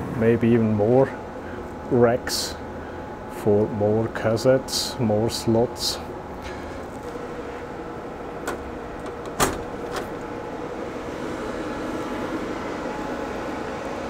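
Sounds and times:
steady hum with faint tone: 0:00.0 - 0:14.0
cabinet door latch clunk: 0:08.5 - 0:10.2.

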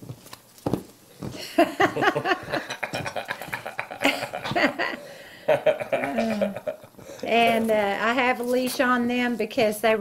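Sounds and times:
woman laughing: 0:01.4 - 0:07.0.

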